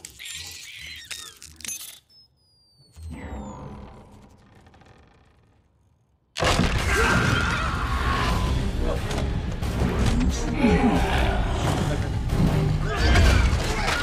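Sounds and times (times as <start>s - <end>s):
loud crash through stone wall: 6.4s - 7.6s.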